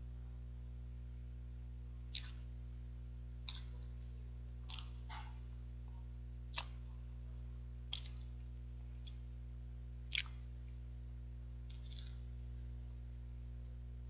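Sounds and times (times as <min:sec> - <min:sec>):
low electrical hum: 0:00.0 - 0:14.0
mouth clicks chewing: 0:02.1 - 0:02.5, 0:03.4 - 0:04.0, 0:04.7 - 0:05.4, 0:06.5 - 0:06.8, 0:07.9 - 0:08.4, 0:10.1 - 0:10.5, 0:11.7 - 0:12.3.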